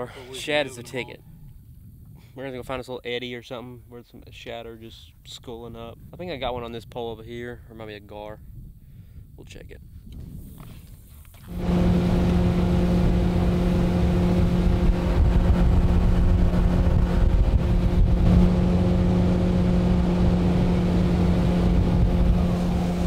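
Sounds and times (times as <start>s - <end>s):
boat engine running: 11.4s - 23.0s.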